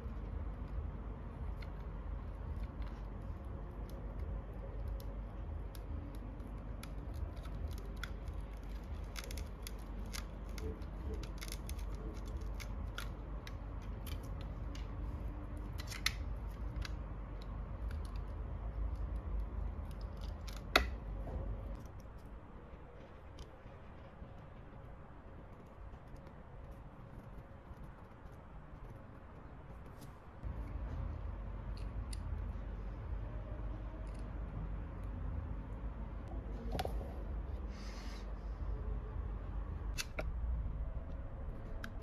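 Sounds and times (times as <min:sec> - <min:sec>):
knife scraping cable insulation: 0:00.0 - 0:22.2.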